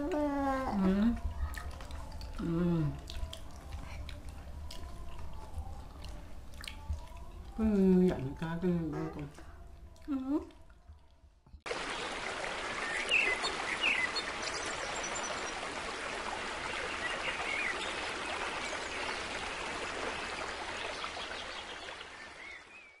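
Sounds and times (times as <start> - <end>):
running water rushing: 11.7 - 22.9.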